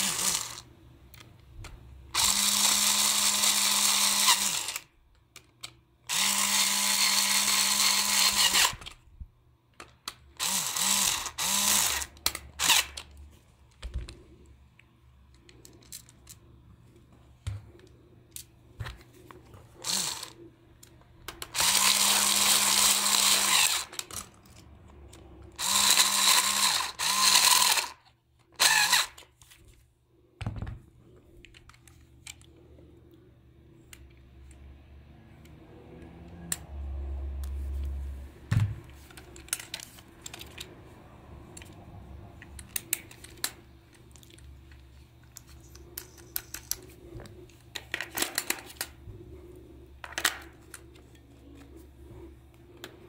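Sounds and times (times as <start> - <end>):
electric screwdriver whine: 0.0 - 0.6, 2.2 - 4.9, 6.1 - 8.9, 10.4 - 13.0, 19.8 - 20.4, 21.6 - 24.0, 25.6 - 28.0, 28.6 - 29.2
plastic clicks and handling noise: 1.1 - 1.9, 5.0 - 6.0, 9.7 - 10.4, 12.1 - 20.0, 20.7 - 21.6, 30.4 - 33.2, 38.8 - 40.8, 41.4 - 49.1, 50.0 - 51.8.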